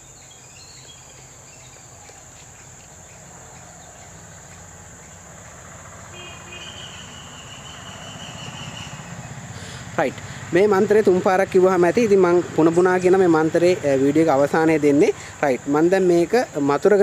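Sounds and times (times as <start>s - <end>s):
insects droning: 0.0s - 17.0s
high chirping call: 6.2s - 9.2s.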